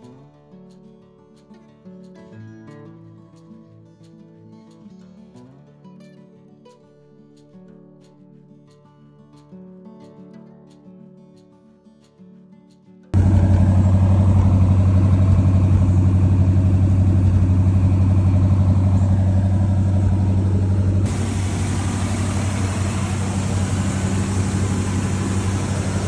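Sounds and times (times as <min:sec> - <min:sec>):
car engine idling: 0:13.2 - 0:26.0.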